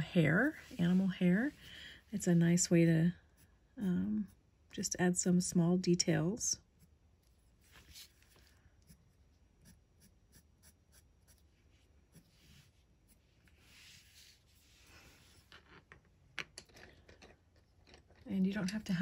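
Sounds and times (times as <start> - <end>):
pencil scratching on paper: 7.6 - 11.5, 12.1 - 14.8.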